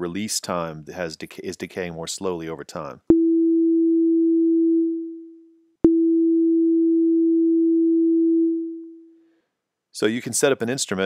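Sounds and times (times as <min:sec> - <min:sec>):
synthesizer sine tone note: 0:03.1 - 0:09.1.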